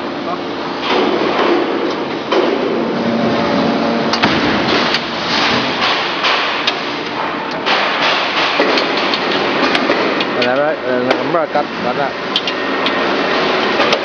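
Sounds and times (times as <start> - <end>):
factory workshop din: 0.0 - 14.0
sharp knocks and clatter: 4.2 - 11.3.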